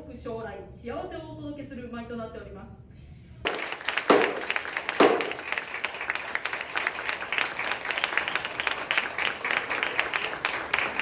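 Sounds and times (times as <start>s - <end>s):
audience applauding: 3.5s - 11.0s.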